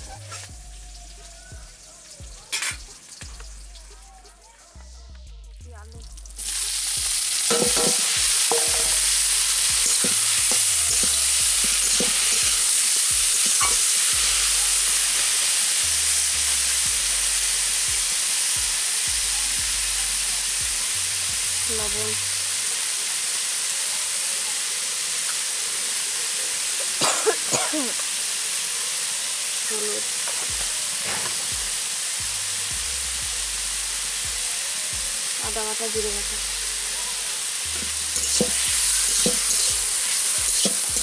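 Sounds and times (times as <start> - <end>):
vegetables sizzling in hot oil: 0.0 - 4.7, 6.1 - 41.0.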